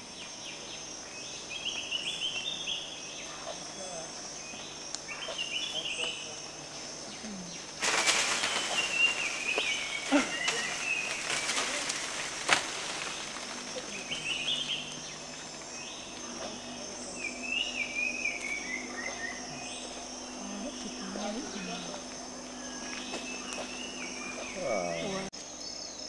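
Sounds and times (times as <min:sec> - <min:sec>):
insects droning: 0:00.0 - 0:26.0
leaves and branches rustling: 0:00.3 - 0:25.3
bird singing falling phrase: 0:07.2 - 0:25.3
branch snapping: 0:07.8 - 0:15.8.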